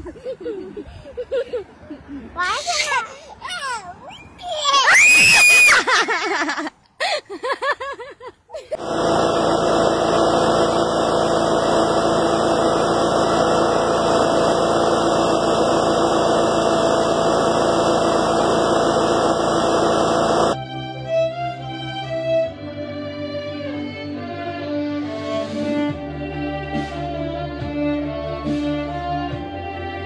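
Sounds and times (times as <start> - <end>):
child squealing: 2.4 - 5.9.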